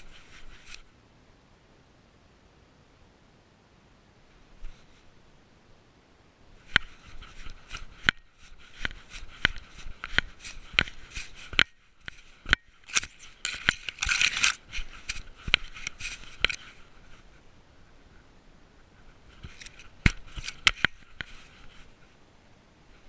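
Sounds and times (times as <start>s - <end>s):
dry grass rustling underfoot: 0.0s - 0.9s, 4.3s - 5.4s, 6.5s - 22.3s
camera harness clicks and knocks: 8.8s - 16.7s, 19.4s - 21.4s.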